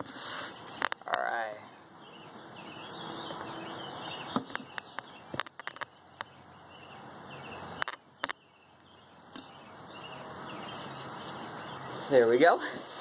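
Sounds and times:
faint outdoor background: 0.0s - 13.0s.

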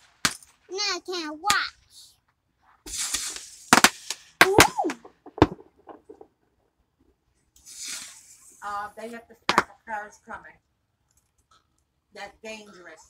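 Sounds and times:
small firework pops: 0.0s - 0.7s, 2.8s - 6.3s, 7.6s - 8.6s, 9.5s - 9.8s
firework cracks: 0.0s - 2.1s, 2.8s - 6.3s, 7.6s - 8.8s, 9.5s - 9.8s
firework hissing: 2.8s - 5.5s, 7.6s - 9.1s.

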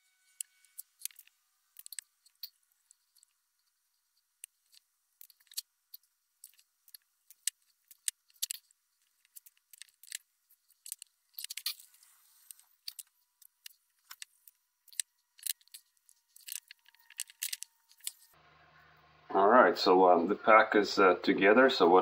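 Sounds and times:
light clicks and metallic rattles: 6.4s - 18.4s.

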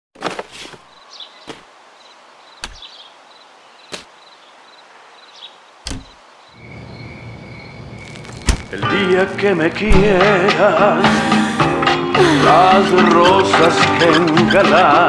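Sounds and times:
cricket chirping: 2.0s - 8.8s
sharp knocks: 9.9s - 10.3s.

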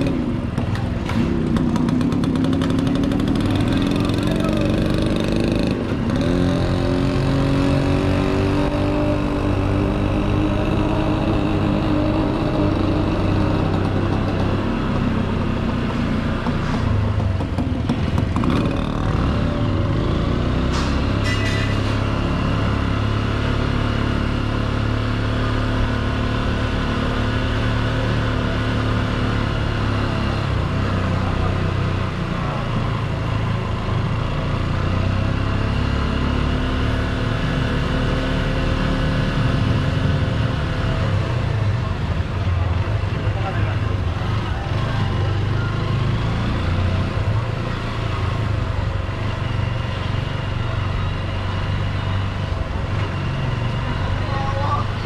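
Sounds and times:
motorcycle engine running: 0.0s - 20.6s.

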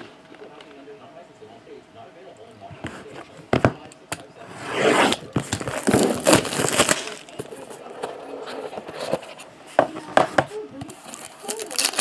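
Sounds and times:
cardboard and shrink-wrap rustling: 4.6s - 9.4s, 10.9s - 12.0s.

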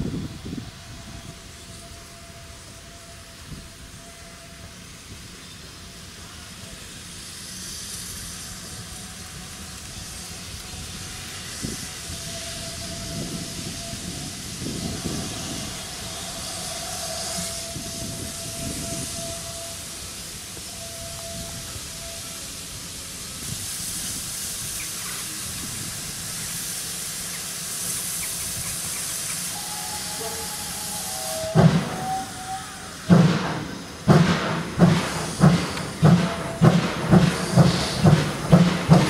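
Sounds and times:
steam hissing: 0.0s - 39.0s
locomotive exhaust beats: 27.1s - 39.0s.

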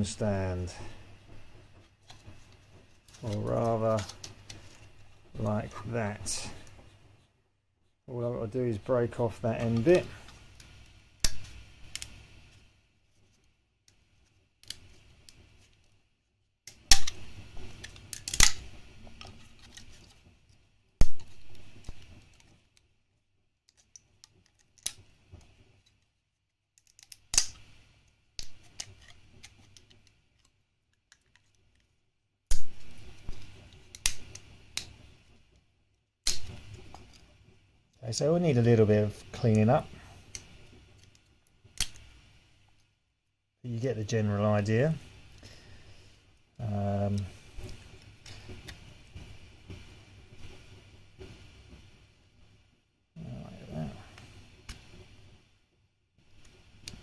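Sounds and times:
plastic snapping and cracking: 14.6s - 15.4s, 16.7s - 20.2s, 23.7s - 25.5s, 26.8s - 27.7s, 32.5s - 35.0s, 36.2s - 37.2s, 40.3s - 42.1s.

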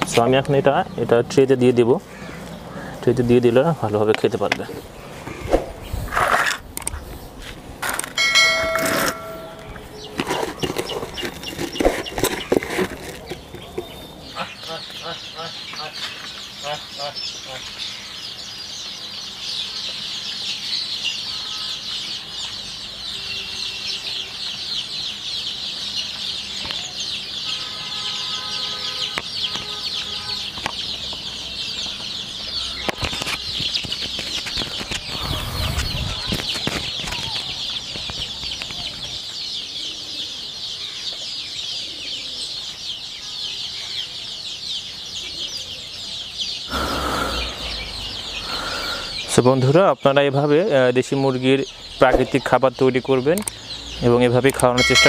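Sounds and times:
chicks peeping: 8.2s - 55.0s.

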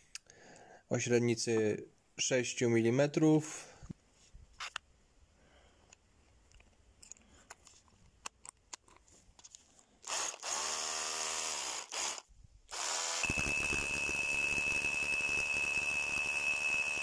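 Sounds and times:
drill spinning freely: 10.0s - 17.0s
hammer drilling into brick: 10.1s - 17.0s
drill bit clicking into chuck: 11.5s - 17.0s.

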